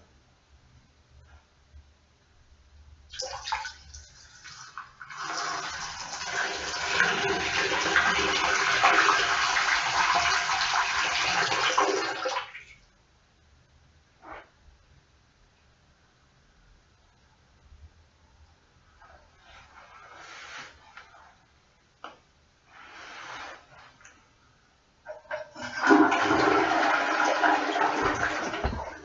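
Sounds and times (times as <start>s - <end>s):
toilet flushing: 3.1s - 12.7s, 25.1s - 29.0s.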